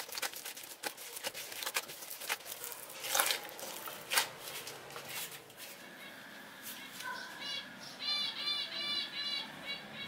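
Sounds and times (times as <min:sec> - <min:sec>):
dough squelching: 0:00.0 - 0:05.7.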